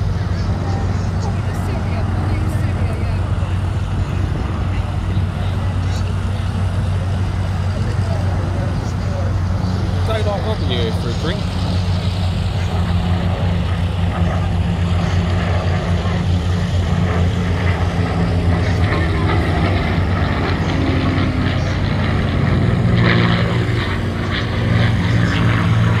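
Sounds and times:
propeller plane engine droning: 0.0 - 26.0.

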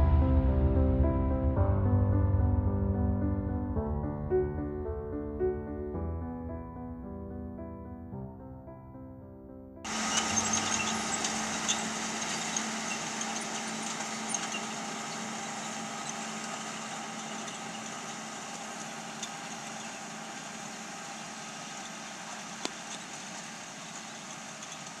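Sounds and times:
tractor diesel engine running: 9.9 - 25.0.

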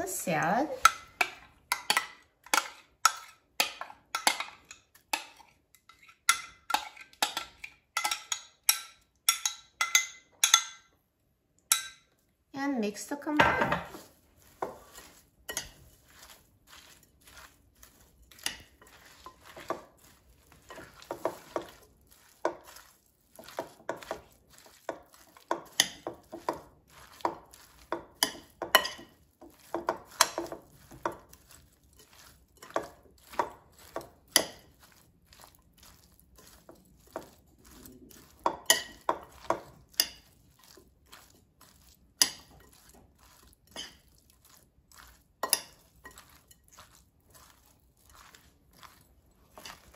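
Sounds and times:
fork clinking against glass bowl: 27.1 - 34.6, 38.2 - 40.4.

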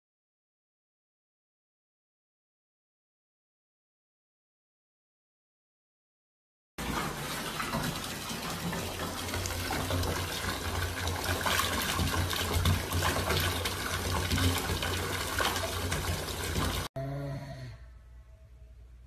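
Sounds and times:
water pouring into bathtub: 6.8 - 16.9.

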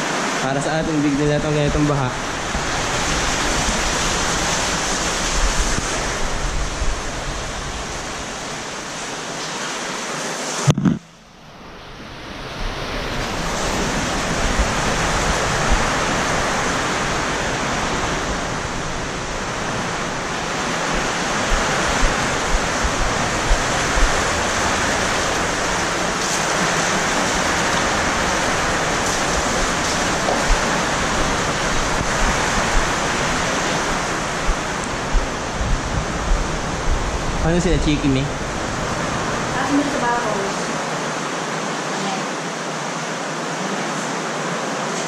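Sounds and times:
heavy rain pouring: 0.0 - 45.0
light thumps: 10.7 - 11.0.

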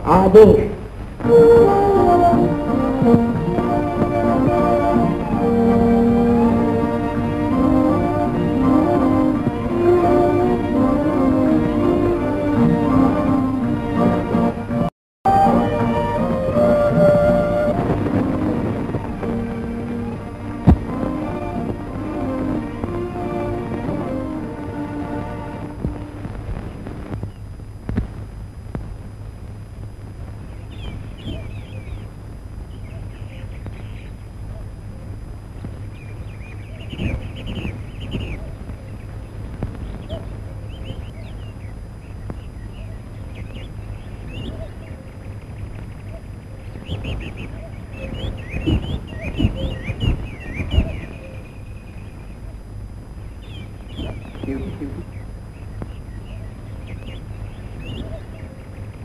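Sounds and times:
birds chirping: 0.0 - 59.0
film soundtrack hum and crackle: 0.0 - 59.0
low thumps: 15.3 - 32.8, 45.4 - 51.2
sharp pops: 26.3 - 29.0
bird whistle: 36.4 - 38.6, 46.8 - 52.1, 57.8 - 58.6.

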